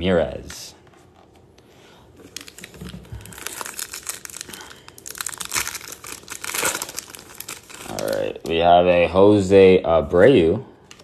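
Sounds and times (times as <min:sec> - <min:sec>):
foil wrapper tearing and crinkling: 0:02.3 - 0:08.4.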